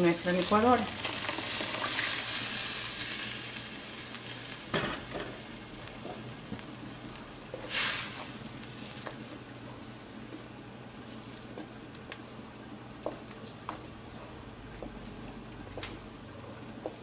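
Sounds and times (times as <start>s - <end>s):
sauce sizzling in hot pan: 0.0s - 6.4s, 7.5s - 10.2s.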